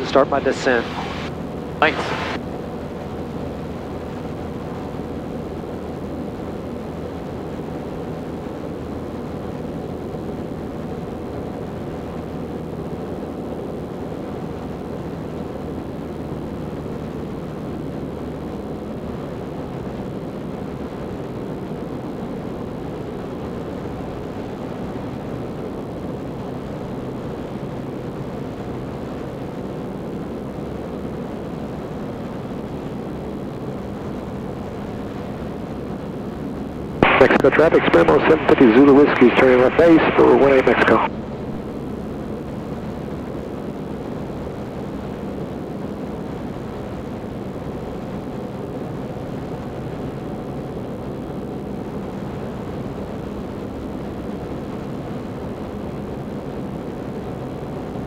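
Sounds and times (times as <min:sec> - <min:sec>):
rushing airflow: 0:00.0 - 0:01.3
light aircraft engine drone: 0:00.0 - 0:58.0.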